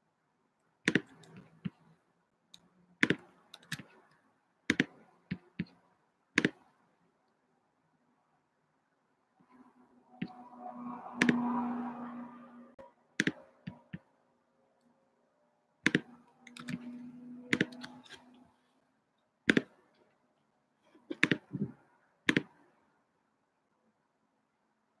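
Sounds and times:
computer keyboard typing and clicking: 3.0 - 4.0, 15.8 - 16.9, 17.5 - 18.2, 19.5 - 19.8, 21.1 - 22.6.

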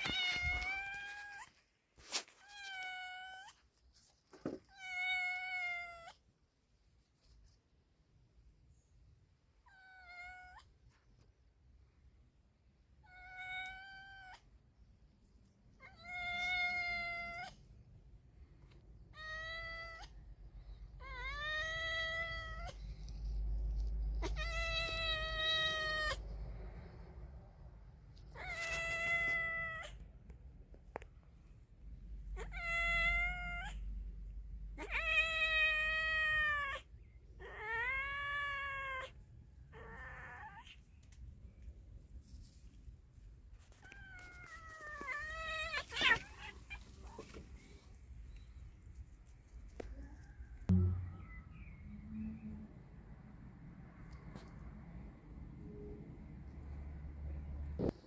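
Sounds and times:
cat yowling: 24.2 - 26.2, 32.4 - 33.8, 34.8 - 40.8.

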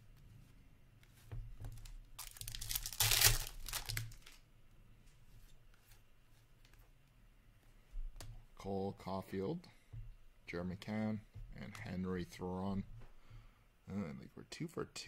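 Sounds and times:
wrapper tearing and crinkling: 2.2 - 4.4.

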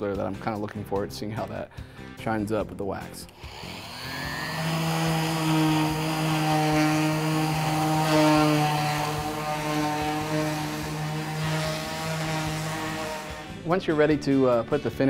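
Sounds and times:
orbital sander humming: 3.3 - 13.8.

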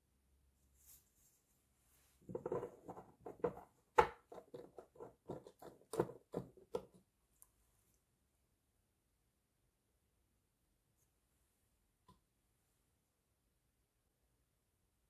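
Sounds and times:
plastic parts tapping and clicking: 2.3 - 7.1.

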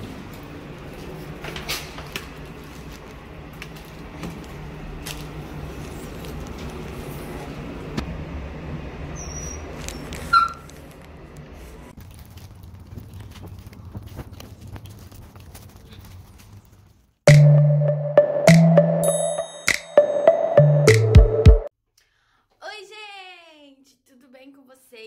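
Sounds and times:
elevator humming: 0.0 - 11.9.

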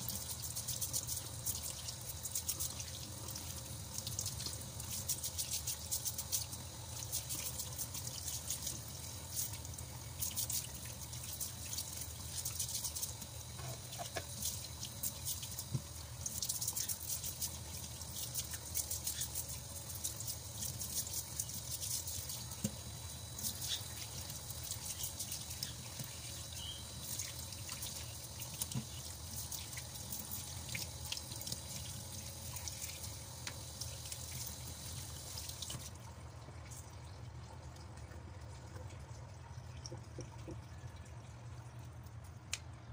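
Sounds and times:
tap running into sink: 13.6 - 14.4, 15.6 - 16.0.

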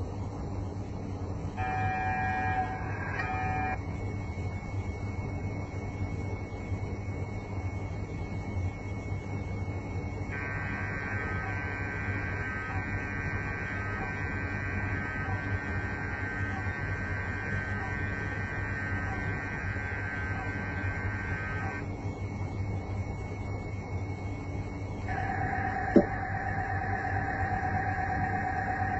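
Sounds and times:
low hum: 1.5 - 28.9
steady electronic tone: 1.6 - 3.8, 10.3 - 22.0, 25.1 - 28.9.

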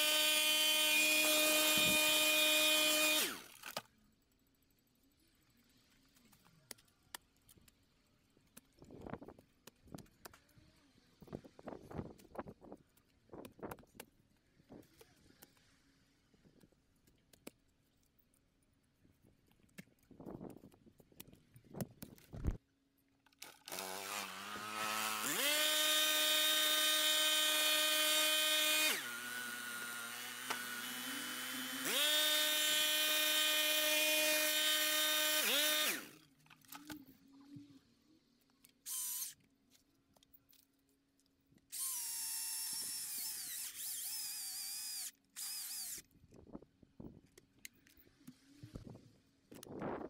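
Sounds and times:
electric chainsaw motor whining: 0.0 - 3.8, 23.4 - 36.2, 38.9 - 39.4, 41.7 - 46.1.

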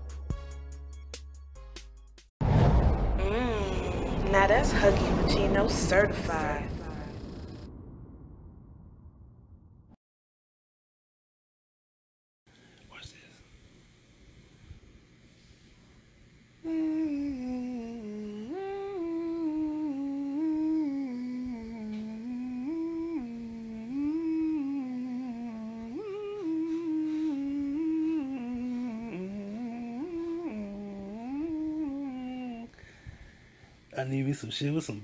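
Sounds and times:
person humming: 3.2 - 4.5, 16.6 - 32.8.

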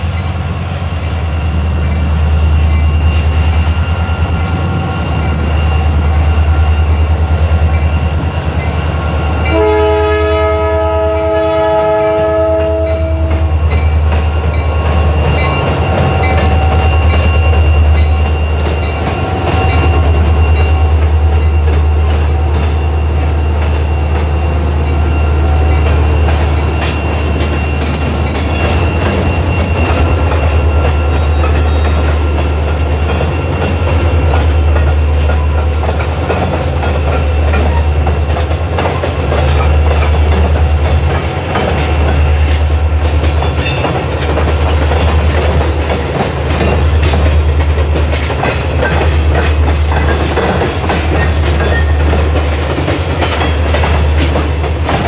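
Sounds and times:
diesel locomotive engines rumbling: 0.0 - 55.0
train wheels clicking over rails: 12.2 - 55.0.

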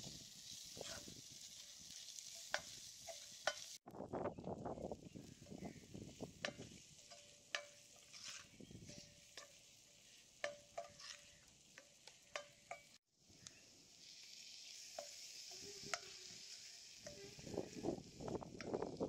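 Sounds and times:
food sizzling in hot pan: 0.0 - 3.9, 5.0 - 19.0
spatula scraping metal pan: 0.4 - 3.8, 6.3 - 13.0, 14.3 - 18.0.

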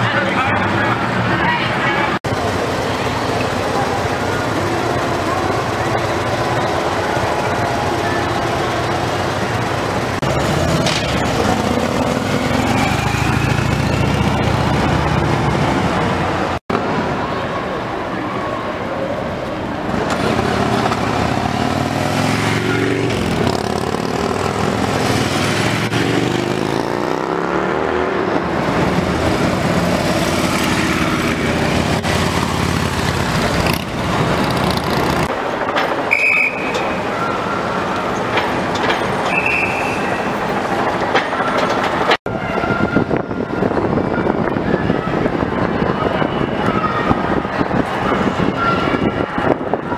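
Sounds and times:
motorcycle engines rumbling past: 2.3 - 16.6, 19.8 - 35.3.

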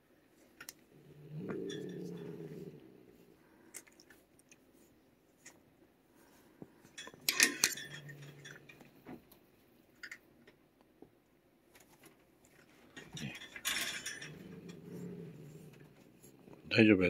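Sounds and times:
scraping rattle: 1.0 - 3.0, 6.8 - 9.1, 11.9 - 16.8
metal rod clinking on cage bars: 1.3 - 2.8, 7.0 - 8.9, 13.0 - 15.9.

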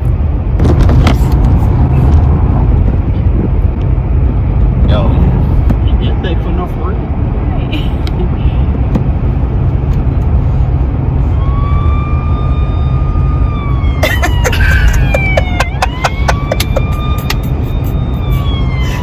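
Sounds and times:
road rumble inside moving car: 0.0 - 19.0
siren wailing: 11.3 - 19.0.

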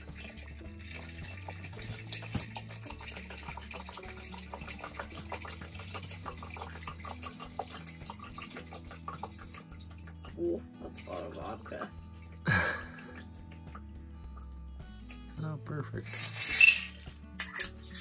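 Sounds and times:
liquid trickling into glass: 0.0 - 15.2.

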